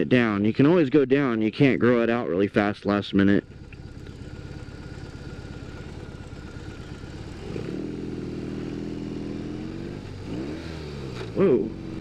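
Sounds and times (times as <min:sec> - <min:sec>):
motorcycle engine revving: 0:03.2 - 0:12.0.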